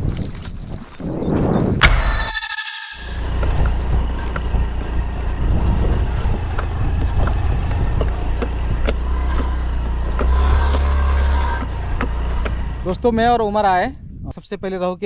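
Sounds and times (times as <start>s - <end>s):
scooter engine rumbling: 0.0s - 13.7s
knocks and rattles from bumps: 3.2s - 13.1s.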